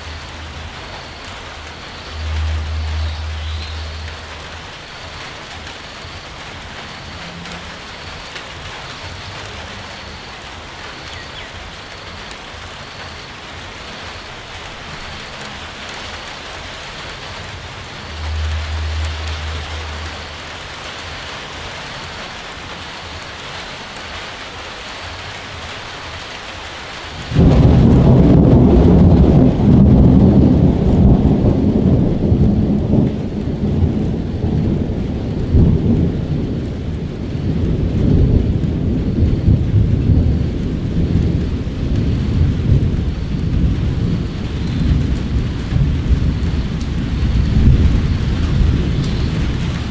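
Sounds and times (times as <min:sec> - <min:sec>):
steady rain: 0:00.0 - 0:49.9
thunder rumbling: 0:00.0 - 0:49.9.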